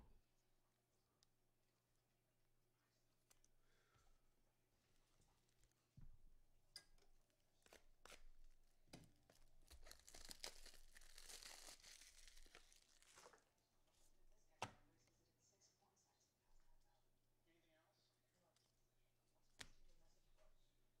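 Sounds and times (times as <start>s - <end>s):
wrapper tearing and crinkling: 9.6s - 13.4s.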